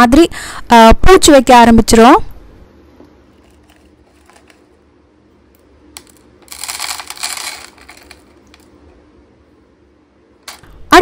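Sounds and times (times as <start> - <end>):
spices rattling on plastic: 3.3 - 4.8, 6.0 - 8.8.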